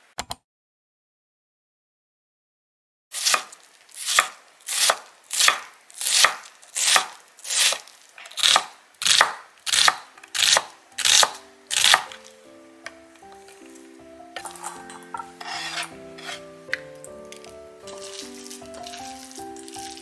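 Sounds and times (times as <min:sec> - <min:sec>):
knife chopping on wooden board: 0:04.1 - 0:07.8, 0:08.4 - 0:12.2, 0:14.4 - 0:16.4
faint background music: 0:09.7 - 0:20.0.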